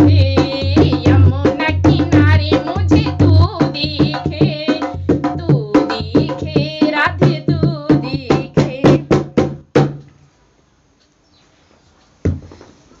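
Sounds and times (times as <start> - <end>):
woman singing devotional song: 0.0 - 9.5
dholak hand drumming: 0.0 - 10.0.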